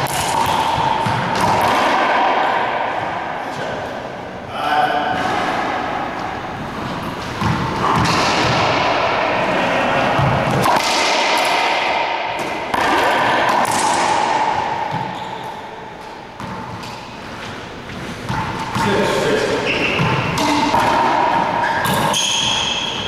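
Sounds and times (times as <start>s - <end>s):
racquetball hits echoing: 0.0s - 23.0s.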